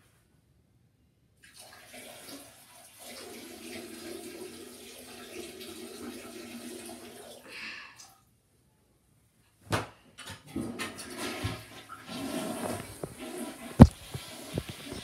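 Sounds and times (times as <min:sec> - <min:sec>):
water running from a tap: 0:01.5 - 0:07.4.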